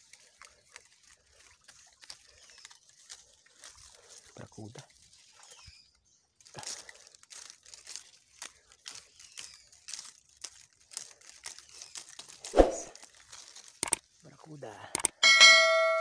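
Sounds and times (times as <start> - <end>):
twigs and leaves crackling: 0.0 - 15.2.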